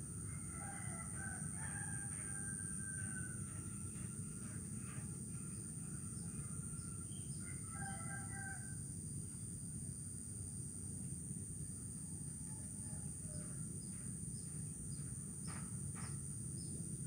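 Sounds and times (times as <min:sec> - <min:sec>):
high-pitched insect hum: 0:00.0 - 0:17.0
chickens and rooster calling: 0:00.2 - 0:03.7, 0:07.1 - 0:08.8.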